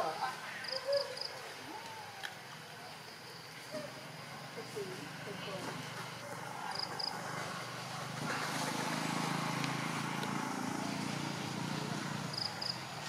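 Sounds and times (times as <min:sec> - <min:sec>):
outdoor background hiss: 0:00.0 - 0:13.0
motor vehicle engine running: 0:04.9 - 0:13.0.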